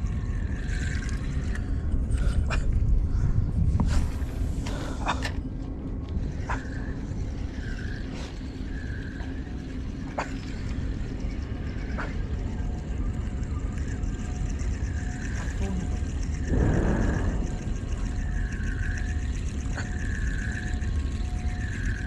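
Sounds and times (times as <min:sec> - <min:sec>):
wind rumbling on microphone: 0:00.0 - 0:09.0, 0:16.3 - 0:20.0
faint low hum: 0:00.0 - 0:22.0.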